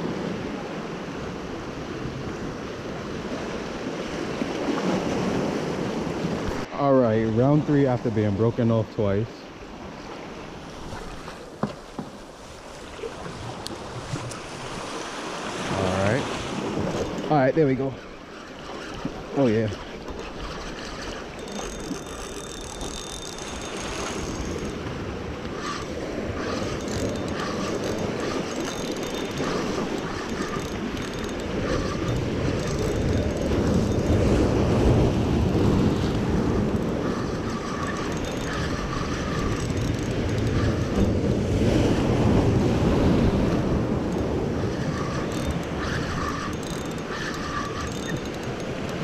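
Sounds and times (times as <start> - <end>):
surf washing over rocks: 12.6 - 18.0
wind on microphone: 12.6 - 49.0
fishing reel cranking: 15.5 - 49.0.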